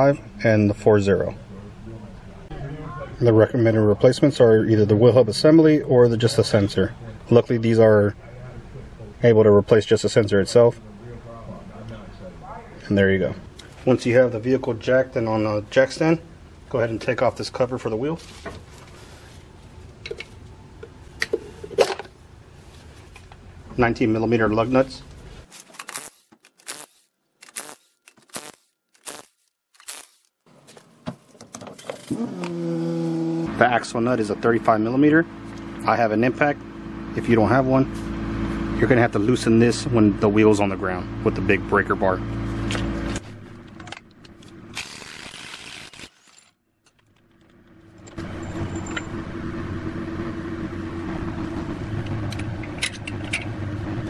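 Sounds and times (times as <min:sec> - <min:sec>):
impact wrench bursts: 0:25.7 - 0:30.3, 0:44.7 - 0:46.4
handling noise: 0:46.2 - 0:49.4
low mechanical hum: 0:46.9 - 0:54.0.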